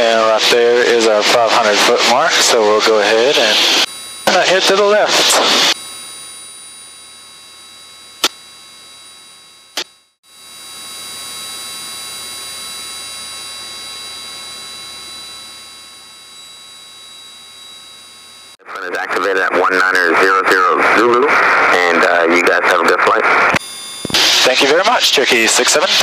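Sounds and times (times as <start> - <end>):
high electrical whine: 0.0 - 18.6, 23.3 - 26.0
aircraft engine and cabin drone: 0.0 - 21.8.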